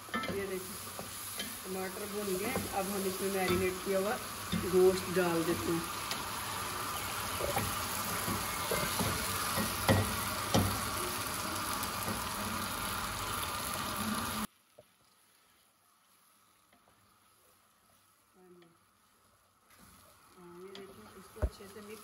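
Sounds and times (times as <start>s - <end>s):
masala sizzling in a pot: 0.0s - 22.0s
spatula knocking: 7.4s - 10.8s.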